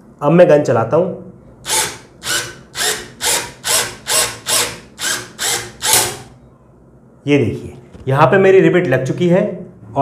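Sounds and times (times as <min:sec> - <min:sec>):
cordless drill bursts: 0:01.6 - 0:06.4.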